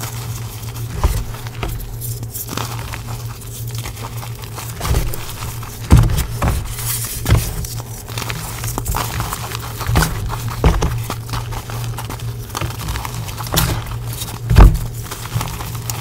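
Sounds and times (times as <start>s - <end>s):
hands crushing chalk: 0.0s - 16.0s
steady low hum: 0.0s - 16.0s
dull thuds: 0.8s - 2.4s, 4.8s - 12.0s, 12.6s - 15.6s.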